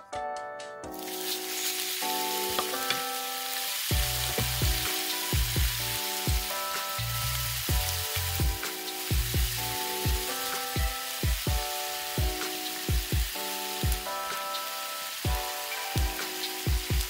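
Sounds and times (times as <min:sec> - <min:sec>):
beef sizzling in hot oil: 0:00.9 - 0:17.0
background music with bass beat: 0:03.9 - 0:14.6, 0:15.2 - 0:17.0.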